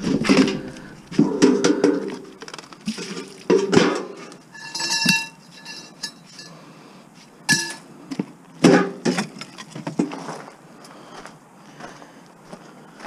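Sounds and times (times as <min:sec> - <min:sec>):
scrap metal clanking: 0:00.0 - 0:02.3, 0:02.9 - 0:06.7.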